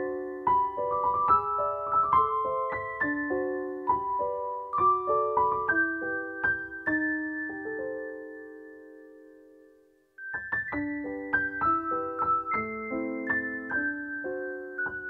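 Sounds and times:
piano notes and chords: 0.0s - 15.0s.

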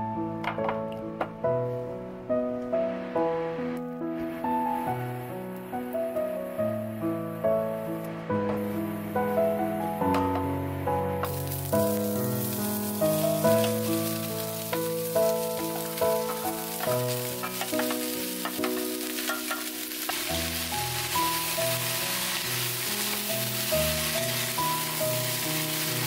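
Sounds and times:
gentle background music: 0.0s - 26.0s
vegetables sizzling: 8.6s - 26.0s
vegetables clattering into pot: 13.4s - 20.4s.

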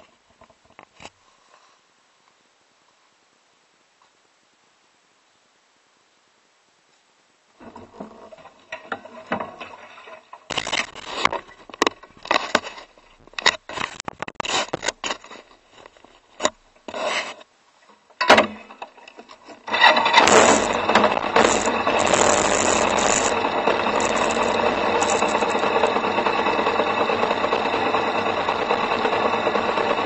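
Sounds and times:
camera handling scrapes and knocks: 10.5s - 17.4s
scooter engine running: 19.9s - 30.0s.

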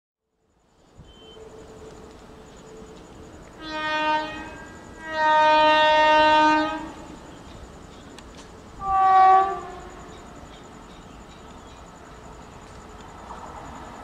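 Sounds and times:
low rumble of moving train: 0.2s - 14.0s
locomotive horn blasts: 1.0s - 1.6s, 3.6s - 7.0s, 8.8s - 10.1s.

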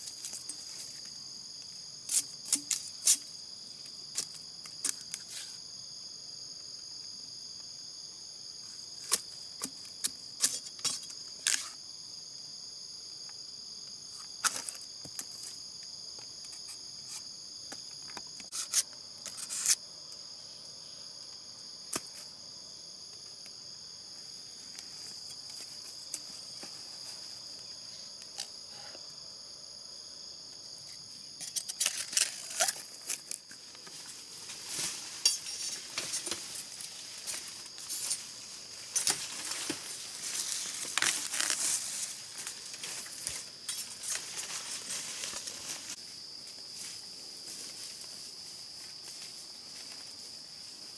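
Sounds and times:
high-pitched insect chorus: 0.0s - 50.9s.

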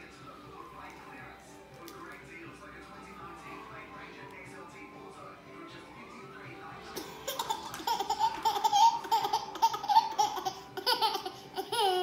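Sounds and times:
toddler laughing: 7.0s - 12.0s.

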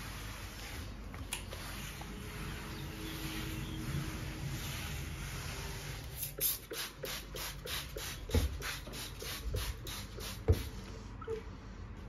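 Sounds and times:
trigger spray bottle spraying: 6.2s - 10.7s.

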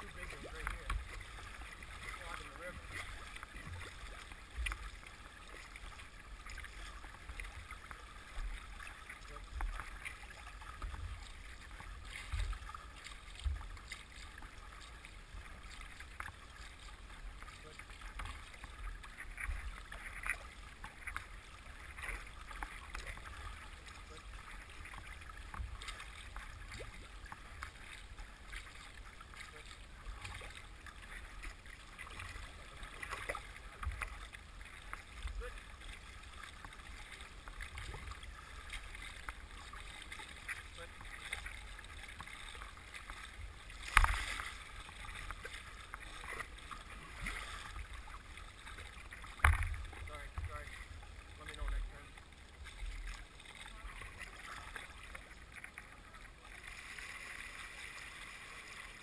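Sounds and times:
water splashing along boat hull: 0.0s - 59.0s.

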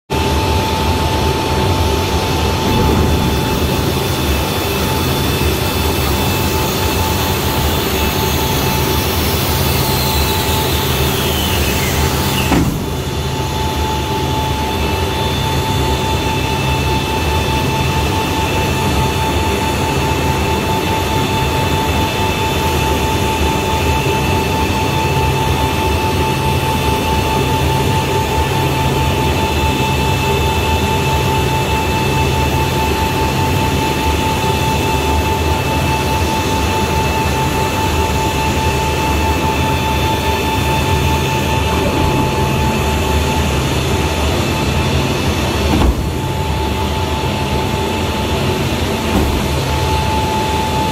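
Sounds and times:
machinery drone with whine: 0.1s - 50.9s
whine falling in pitch: 0.2s - 15.2s, 37.2s - 50.9s
sharp metallic clunk: 2.6s - 5.2s, 12.4s - 13.2s, 45.7s - 46.5s.

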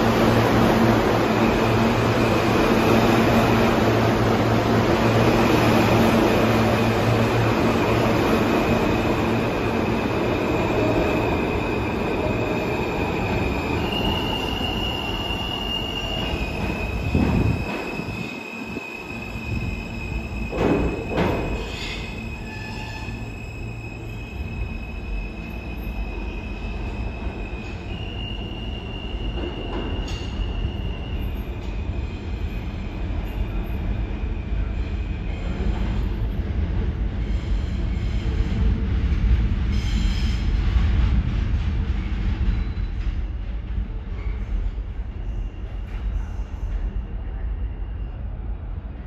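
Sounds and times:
subway train wheels rumbling: 0.0s - 49.0s
high-pitched wheel squeal: 10.5s - 31.4s.

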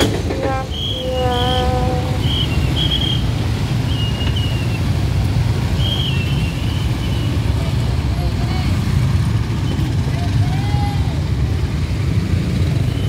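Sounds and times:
horn honking: 0.0s - 3.3s
road traffic rumble: 0.0s - 13.0s.

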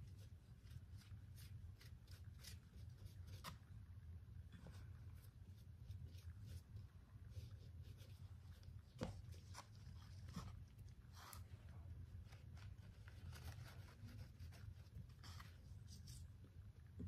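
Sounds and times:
low steady hum: 0.0s - 17.0s
scratchy brushing: 4.6s - 16.6s.

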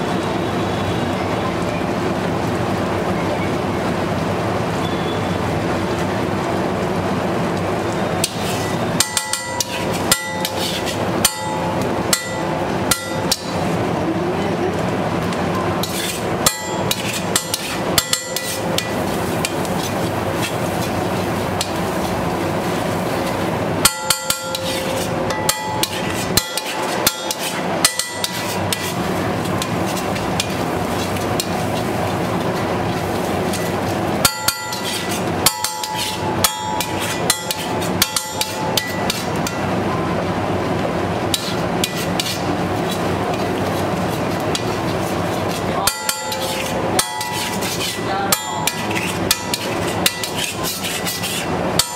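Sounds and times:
steady background noise: 0.0s - 51.9s
metal spatula clanking on griddle: 8.2s - 13.7s, 15.8s - 22.1s, 23.2s - 31.9s, 32.5s - 39.7s, 41.3s - 43.6s, 44.5s - 51.9s.

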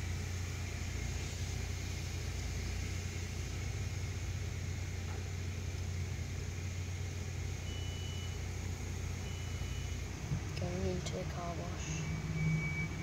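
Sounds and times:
car engine idling: 0.0s - 13.0s
short high-pitched beep: 12.0s - 13.0s.

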